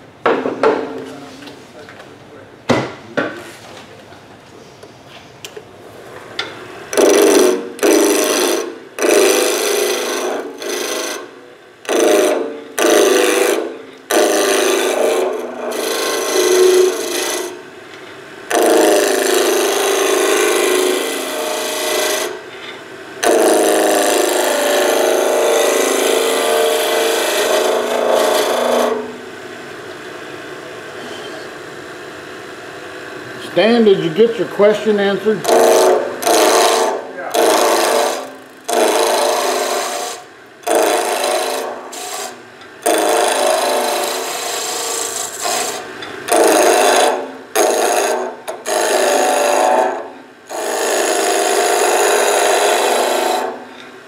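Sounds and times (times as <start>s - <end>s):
chisel cutting wood on lathe: 6.9s - 11.3s, 11.9s - 17.6s, 18.5s - 22.4s, 23.2s - 29.1s, 33.5s - 53.6s.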